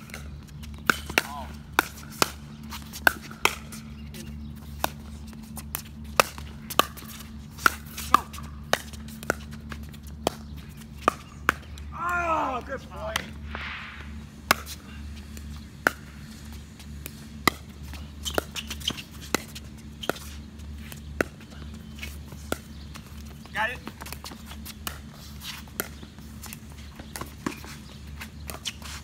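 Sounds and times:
steady low hum: 0.0s - 29.0s
paddles hitting plastic ball: 4.7s - 28.8s
ball bouncing on hard court: 6.1s - 11.8s, 17.0s - 20.3s
player calling out: 11.9s - 13.2s.

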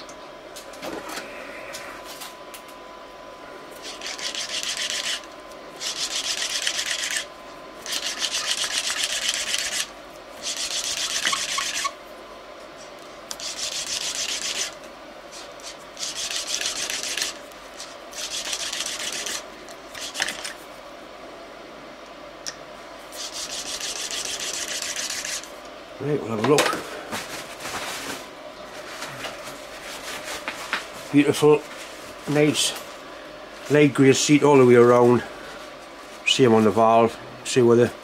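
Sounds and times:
gritty rubbing of valve grinding: 3.8s - 12.0s, 23.2s - 25.5s.

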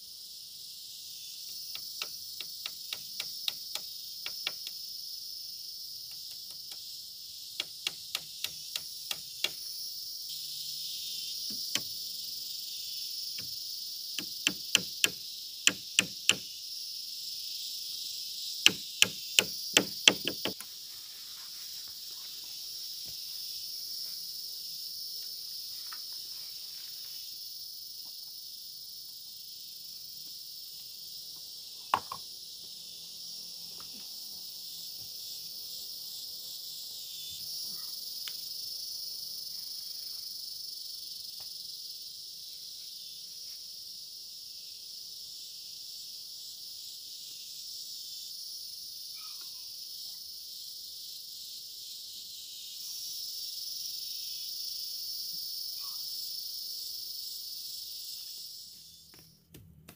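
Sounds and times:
crickets chirping: 0.0s - 59.9s
sharp knocking blows: 14.2s - 16.4s, 18.7s - 20.6s.

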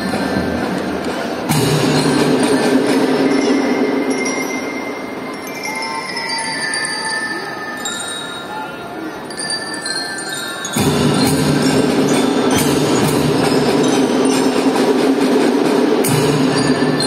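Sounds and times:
marching drum band playing: 0.0s - 4.4s, 10.8s - 17.0s
bell-like ringing tones: 2.0s - 14.6s.

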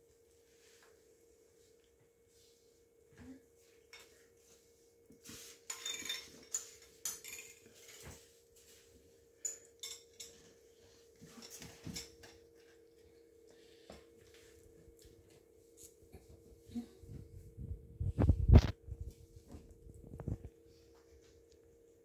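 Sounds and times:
faint steady hum: 0.0s - 22.0s
clatters on tiled floor: 5.7s - 8.3s.

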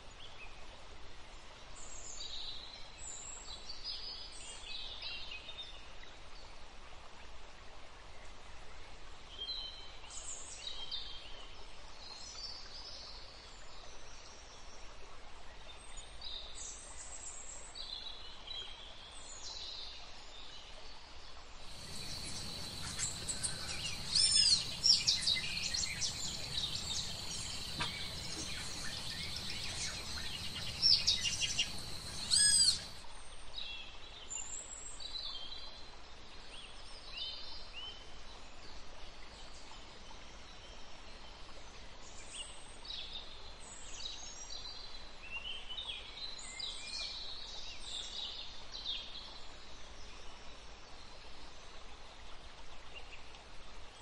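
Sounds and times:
birds calling: 21.7s - 33.0s
steady high whine: 21.7s - 33.0s.

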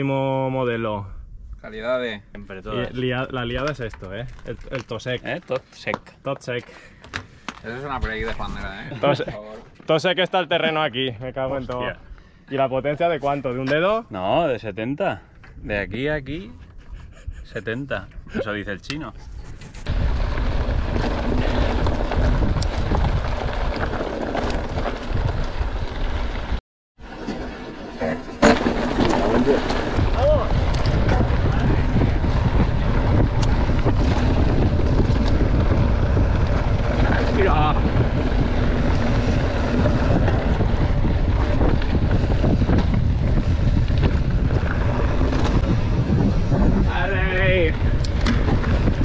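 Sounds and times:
wind buffeting microphone: 15.5s - 26.6s, 29.1s - 49.0s
bike rattling and knocking: 19.6s - 26.6s, 27.2s - 49.0s
steady low rumble: 29.5s - 49.0s.

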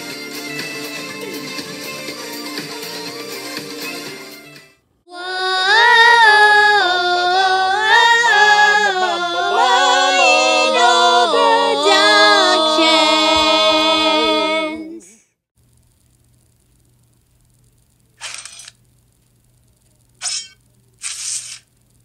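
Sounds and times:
person singing a jingle: 5.1s - 15.2s.

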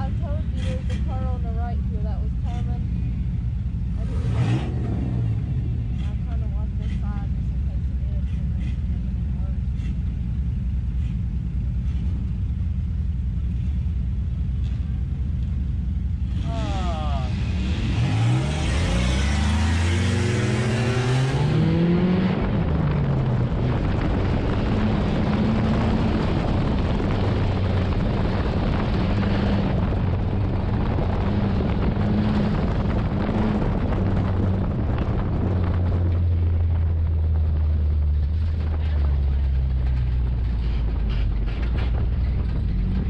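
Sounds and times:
road and drivetrain noise: 0.0s - 43.0s
race car engine accelerating: 3.9s - 6.9s, 16.3s - 36.9s.

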